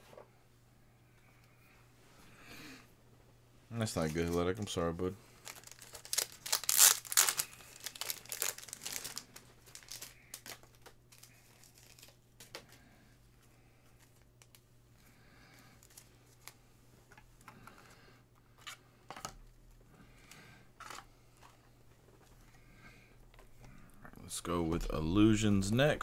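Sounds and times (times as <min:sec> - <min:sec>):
plastic packaging tearing and crinkling: 0:05.4 - 0:12.8
rustles and clicks of handling: 0:05.4 - 0:14.7.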